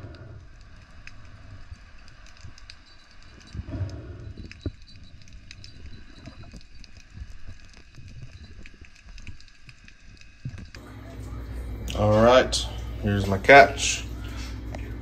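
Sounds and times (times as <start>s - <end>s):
underwater clicks and crackles: 0.0s - 10.8s
low underwater rumble: 0.0s - 13.4s.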